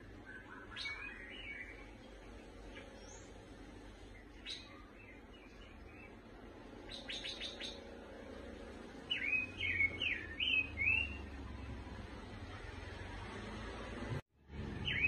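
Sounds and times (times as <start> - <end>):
swooping bird chirps: 0.0 - 3.4, 4.0 - 7.9, 9.0 - 12.0, 14.8 - 15.0
songbird singing: 0.0 - 13.6, 14.7 - 15.0
bird ticking notes: 6.8 - 7.9, 9.0 - 11.4.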